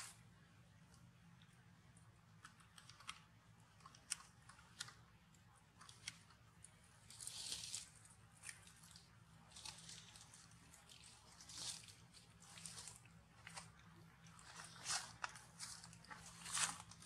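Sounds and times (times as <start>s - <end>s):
crackles of dry leaves and grit: 7.0s - 17.0s.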